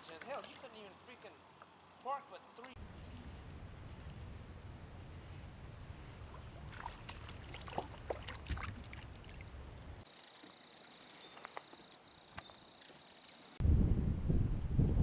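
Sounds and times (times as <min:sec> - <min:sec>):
low wind and water rumble: 0:02.8 - 0:10.1, 0:13.6 - 0:15.0.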